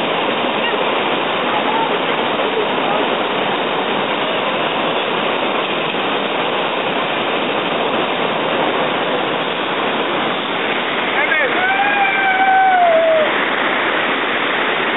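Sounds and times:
river water rushing over rocks: 0.0s - 14.9s.

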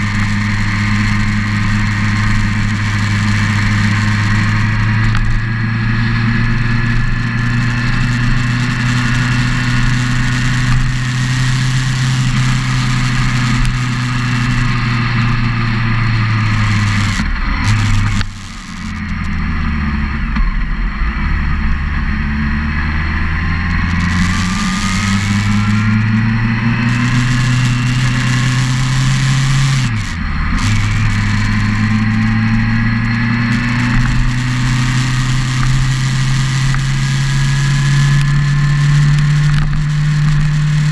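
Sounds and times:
motorcycle engine running: 0.0s - 40.9s.

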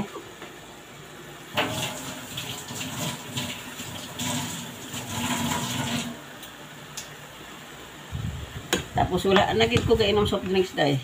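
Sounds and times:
tap water splashing into sink: 1.6s - 6.1s.

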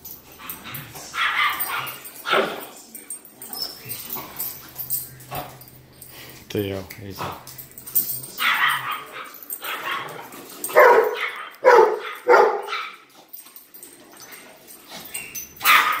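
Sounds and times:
dog barking and yipping: 0.4s - 2.6s, 8.3s - 13.1s, 15.1s - 16.0s.

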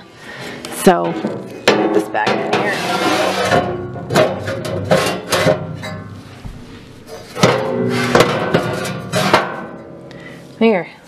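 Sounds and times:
metal drawer clunking and scraping: 1.2s - 9.8s.

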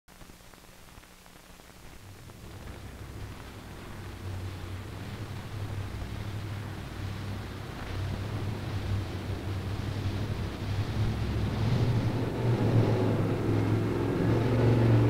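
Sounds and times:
faint hiss: 0.1s - 15.0s
off-road vehicle engine droning: 4.1s - 15.0s.

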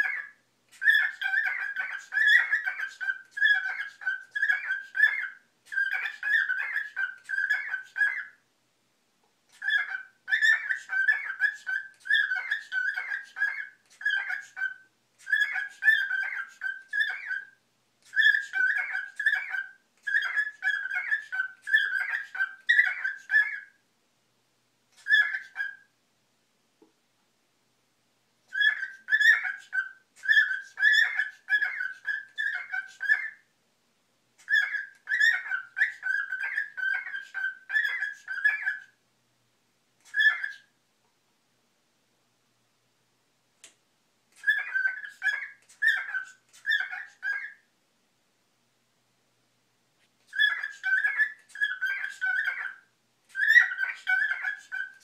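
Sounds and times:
cockatiel warbling and chirping: 0.0s - 8.4s, 9.5s - 23.8s, 24.9s - 25.9s, 28.5s - 33.5s, 34.4s - 39.0s, 40.0s - 40.8s, 44.3s - 47.7s, 50.1s - 55.0s.

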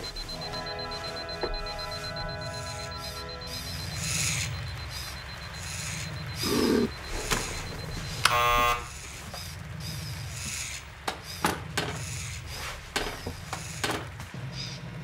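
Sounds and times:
electric buzzer: 0.0s - 9.3s.

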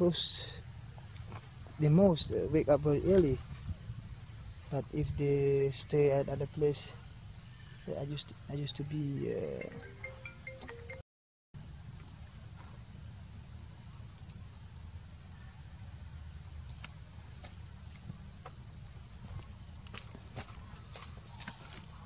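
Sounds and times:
insects droning: 0.0s - 11.0s, 11.6s - 22.0s.

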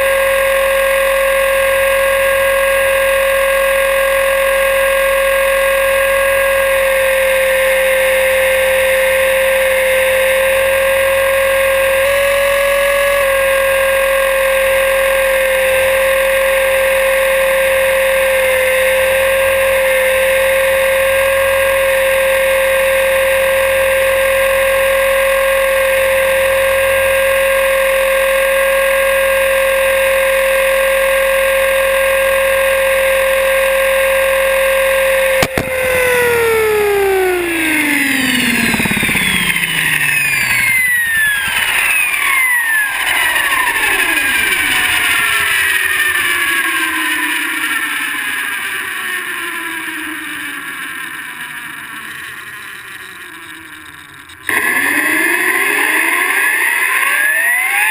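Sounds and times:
rc helicopter motor whine: 0.0s - 57.9s
rotors rushing: 35.3s - 45.2s.

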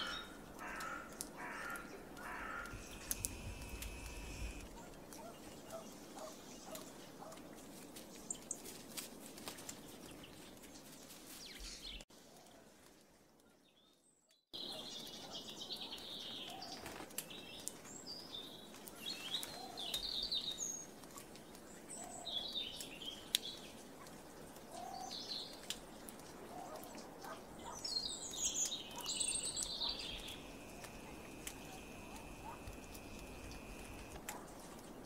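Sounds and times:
small birds chirping: 0.0s - 7.4s, 13.2s - 34.9s
small clicks: 2.2s - 5.3s.

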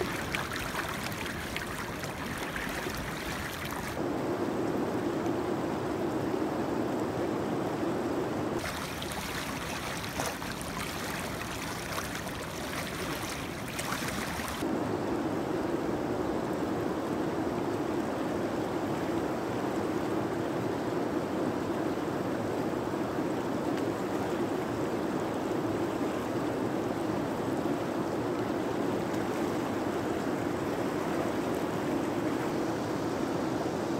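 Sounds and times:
shallow river rushing: 0.0s - 4.0s, 8.6s - 14.8s.

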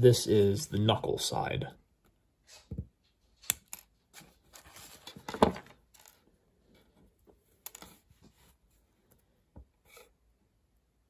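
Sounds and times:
plastic parts rustling: 3.7s - 6.3s.

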